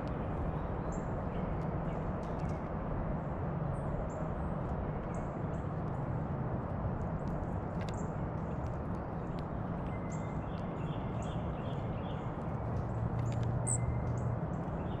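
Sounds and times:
small ticks: 0:06.9 - 0:11.8, 0:12.4 - 0:14.8.

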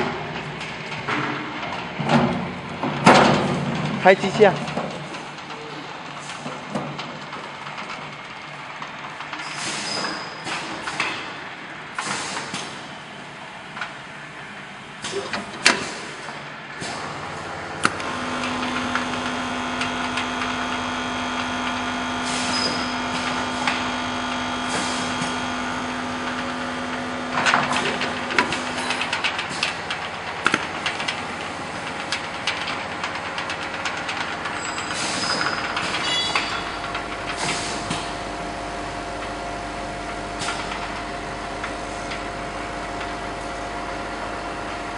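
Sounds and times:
steady motor hum: 0:17.0 - 0:33.0
machine knocks and clacks: 0:25.0 - 0:38.2.

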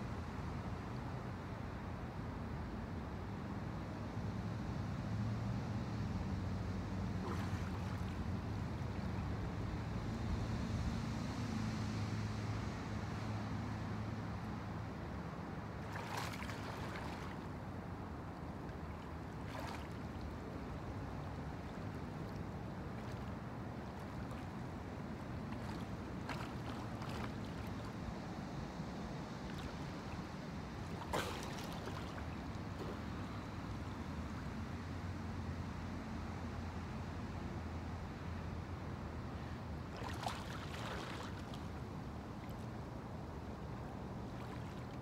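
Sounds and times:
low outdoor rumble: 0:00.0 - 0:11.6, 0:12.4 - 0:45.0
soft water splashes: 0:06.9 - 0:09.6, 0:15.5 - 0:34.5, 0:39.3 - 0:45.0.

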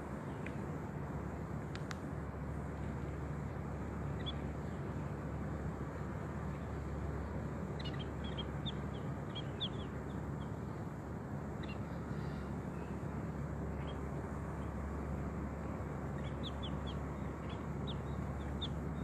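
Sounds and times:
low background rush: 0:00.0 - 0:19.0
small birds chirping: 0:03.3 - 0:05.2, 0:05.9 - 0:19.0.

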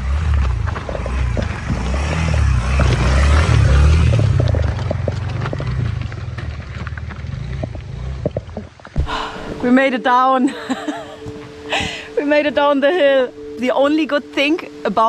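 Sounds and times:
stones clicking under tyres: 0:00.0 - 0:09.0
motorcycle engine at low revs: 0:00.0 - 0:09.8.

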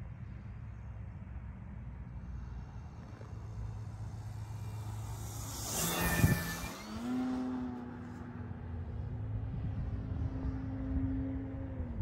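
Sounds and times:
model airplane motor and propeller: 0:00.2 - 0:12.0
low rumble: 0:02.0 - 0:08.1.

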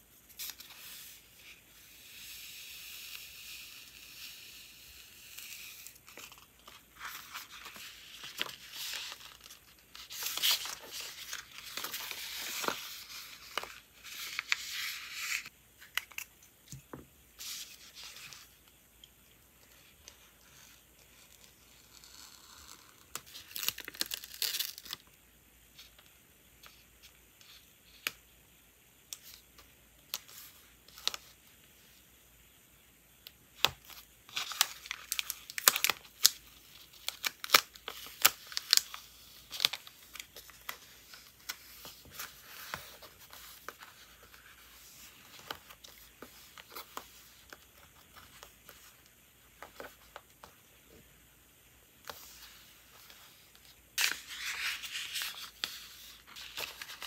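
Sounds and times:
stickers peeled and crinkled: 0:22.0 - 0:25.0.

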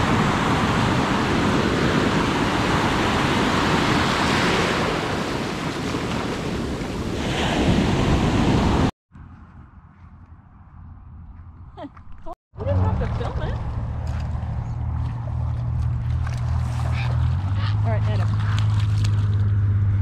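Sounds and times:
ocean surf breaking: 0:00.0 - 0:08.9
wind buffeting microphone: 0:00.0 - 0:08.9.

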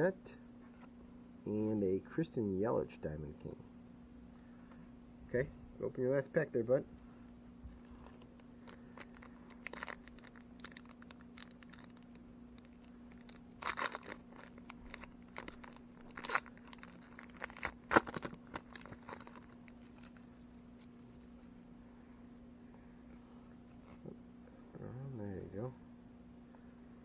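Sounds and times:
foil wrapper tearing and crinkling: 0:08.0 - 0:21.5.

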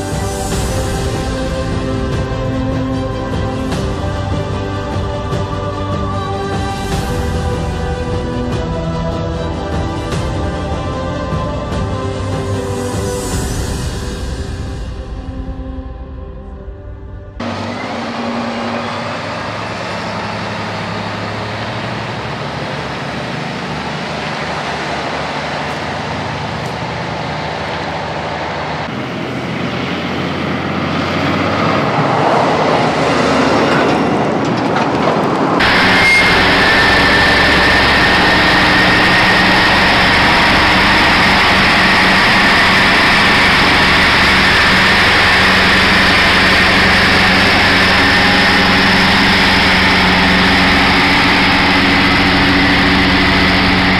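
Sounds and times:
heavy truck engines: 0:00.0 - 0:53.9
thin steady whine: 0:35.6 - 0:53.9.

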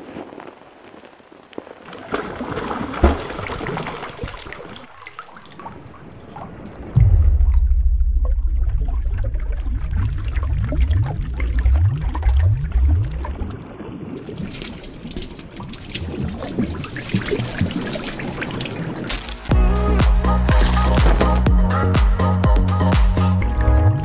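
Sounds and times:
seawater splashing and sloshing: 0:01.6 - 0:07.0, 0:09.4 - 0:19.5, 0:20.1 - 0:21.6
water dripping: 0:03.0 - 0:21.5.

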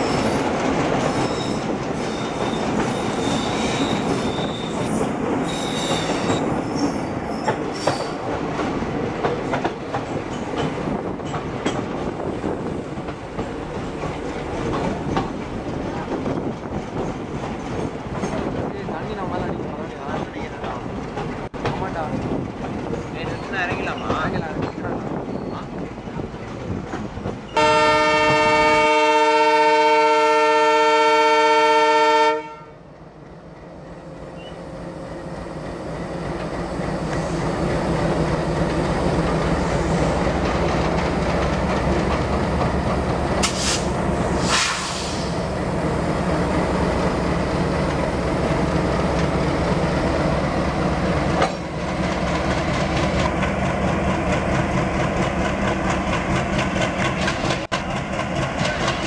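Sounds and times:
diesel locomotives running: 0:00.0 - 0:59.0
locomotive horn blast: 0:27.6 - 0:32.8.

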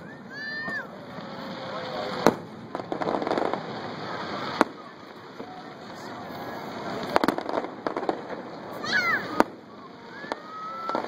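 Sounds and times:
fireworks bursting: 0:00.0 - 0:11.0.

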